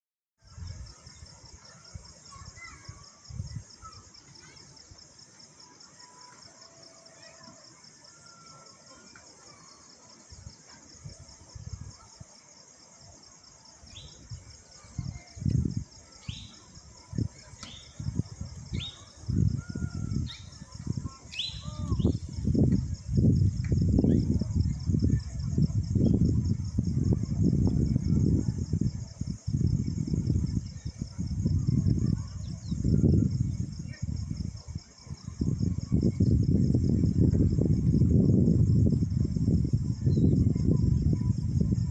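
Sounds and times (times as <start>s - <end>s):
bird calls: 21.3s - 22.2s.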